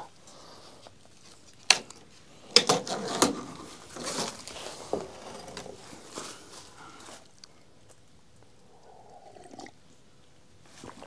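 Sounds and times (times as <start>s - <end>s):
rustling: 0.0s - 8.0s.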